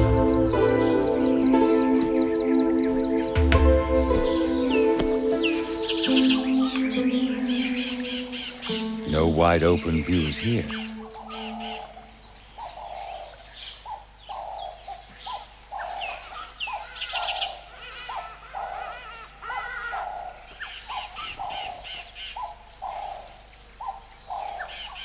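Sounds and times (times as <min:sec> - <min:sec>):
bird hooting: 0:00.0 - 0:25.0
birds chirping and whistling: 0:00.0 - 0:25.0.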